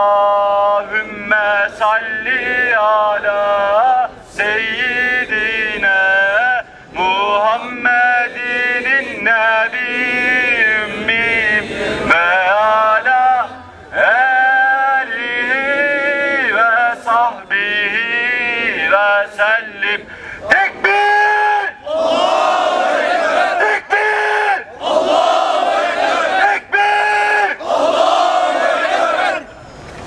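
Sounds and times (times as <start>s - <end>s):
man singing a hymn: 0.0s - 21.7s.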